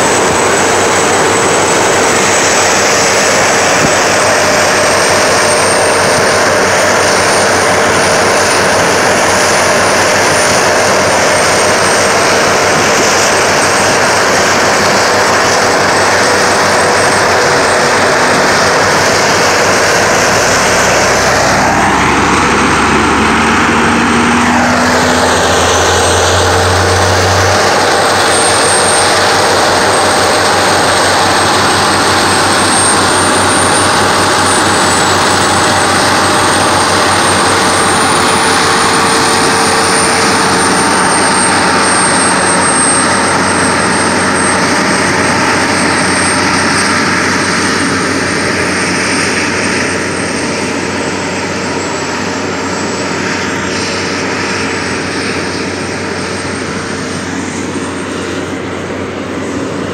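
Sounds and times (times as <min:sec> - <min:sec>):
deeper hum: 0:00.0 - 0:59.9
jet-like rushing: 0:00.0 - 0:59.9
truck engines and hydraulics: 0:00.0 - 0:59.9.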